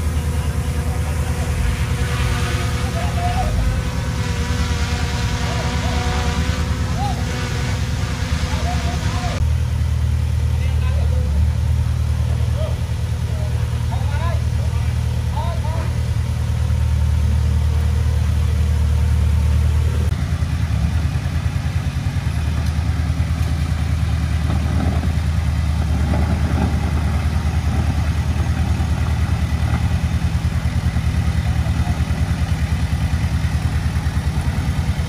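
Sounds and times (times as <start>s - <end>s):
diesel engine throbbing: 0.0s - 35.0s.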